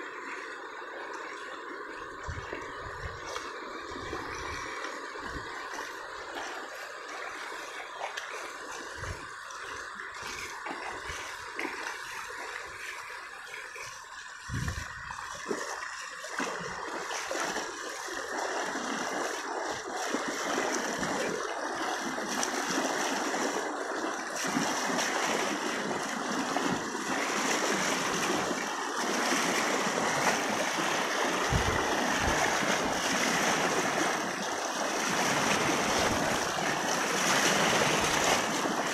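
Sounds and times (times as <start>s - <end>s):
river water rushing over sand: 0.0s - 38.9s.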